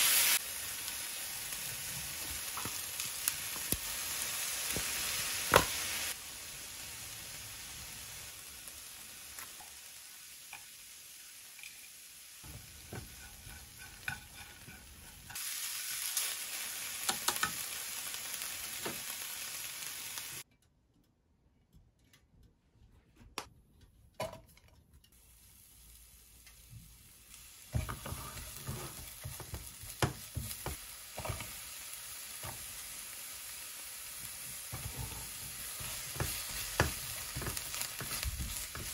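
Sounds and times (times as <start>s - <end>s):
beef sizzling in a pan: 0.0s - 20.4s, 25.2s - 38.9s
utensils tapping against pan: 12.5s - 15.4s, 17.1s - 17.6s, 27.8s - 31.6s, 34.7s - 38.9s.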